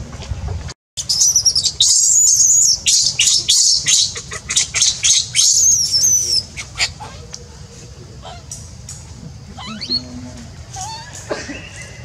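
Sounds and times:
baby monkey screaming: 1.0 - 7.4, 8.2 - 8.5, 9.5 - 12.0.

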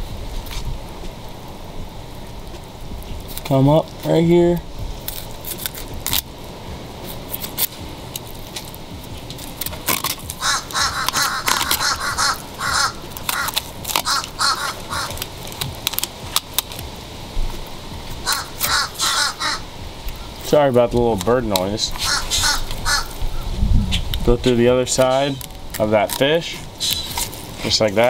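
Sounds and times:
bird calling rapidly: 10.3 - 15.4, 18.2 - 20.4, 21.9 - 24.1.

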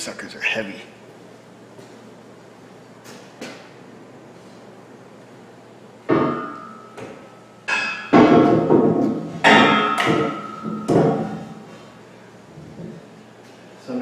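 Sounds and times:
metal clanking with ringing: 7.7 - 8.7, 9.4 - 11.5.

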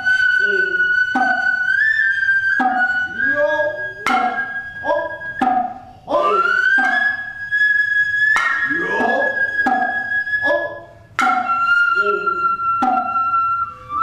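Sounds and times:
bamboo flute high note: 0.0 - 14.0
hand drum strokes: 2.6 - 3.4, 4.0 - 4.6, 8.4 - 10.1, 11.2 - 12.2.

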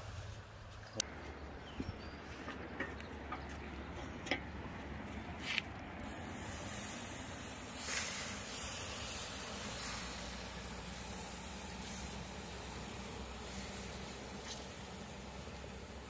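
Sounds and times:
fish sizzling on grill: 5.9 - 16.0.

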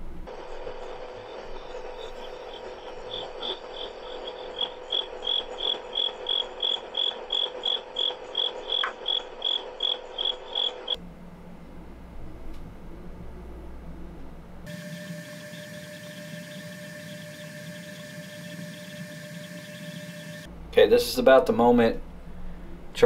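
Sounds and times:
steady low hum: 0.0 - 23.0
cricket chirping: 1.8 - 11.0.

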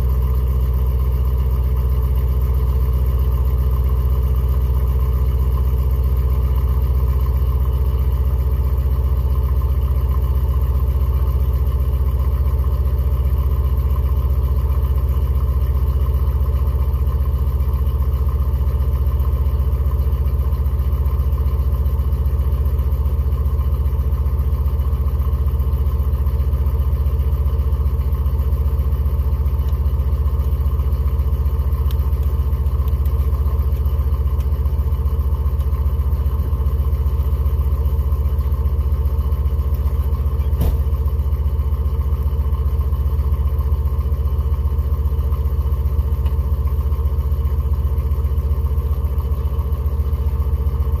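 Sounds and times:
truck engine idling: 0.0 - 51.0.

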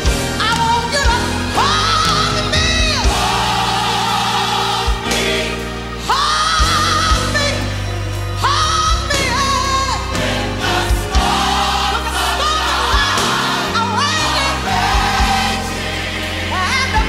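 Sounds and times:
gospel choir singing: 0.0 - 17.0.

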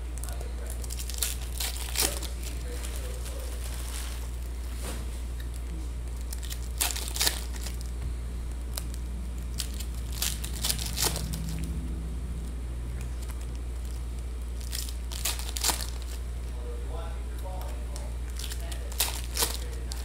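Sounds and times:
foil wrappers crinkling: 0.0 - 11.8, 13.0 - 16.6, 17.3 - 20.0
steady low hum: 0.0 - 20.0
cards being handled: 0.1 - 11.8, 17.5 - 20.0.

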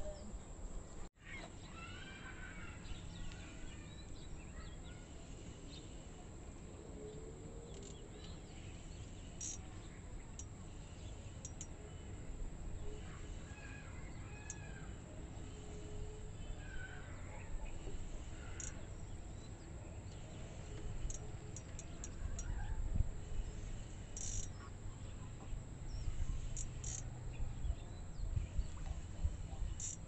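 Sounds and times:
low outdoor background hiss: 0.0 - 30.0
birds chirping: 1.2 - 30.0
faint high ticks: 11.2 - 11.8, 18.5 - 18.8, 26.4 - 27.2.

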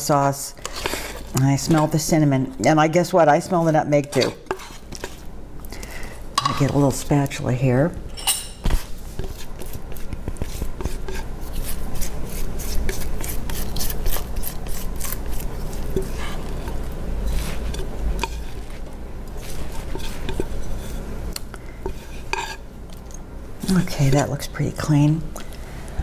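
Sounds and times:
spatula scraping batter from bowl: 4.1 - 5.2, 19.4 - 21.0, 21.9 - 22.6.

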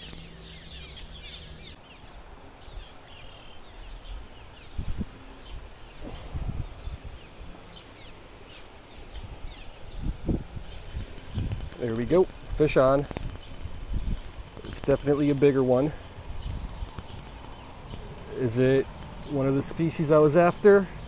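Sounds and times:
outdoor background hiss: 0.0 - 21.0
small birds chirping: 0.0 - 21.0.

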